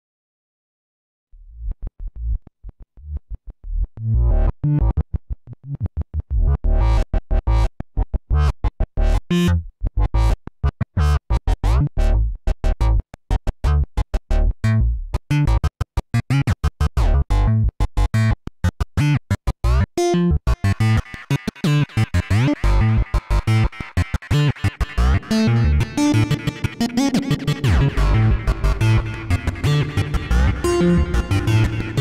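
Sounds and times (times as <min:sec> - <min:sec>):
deep bass: 0:01.4 - 0:10.4, 0:11.1 - 0:13.0, 0:13.6 - 0:15.7, 0:16.9 - 0:18.4, 0:24.9 - 0:32.0
drum and bass beat: 0:21.8 - 0:32.0
rising synth sweep: 0:25.8 - 0:32.0.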